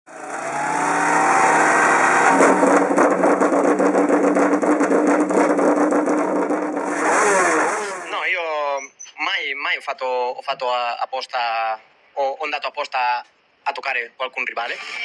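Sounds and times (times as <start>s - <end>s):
engine running and revving: 0.1s - 8.2s.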